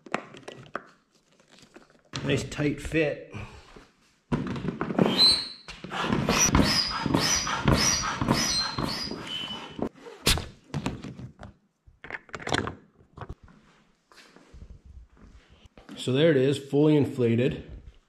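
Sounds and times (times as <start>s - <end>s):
foot pump squeaking: 5.0s - 10.4s.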